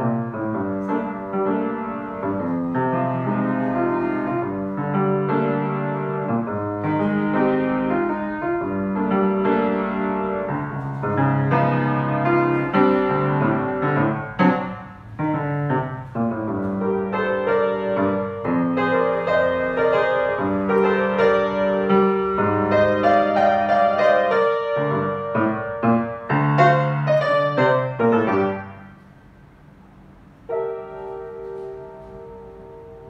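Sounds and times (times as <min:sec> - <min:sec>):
grand piano chords and melody: 0:00.0 - 0:33.0.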